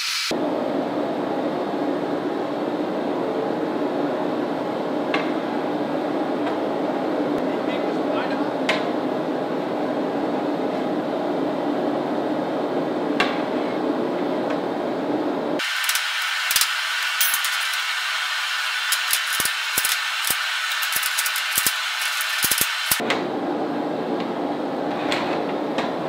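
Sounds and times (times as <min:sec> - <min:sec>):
hammer beating hot steel: 0:15.6 - 0:23.0
steady workshop rushing noise: 0:15.6 - 0:23.0.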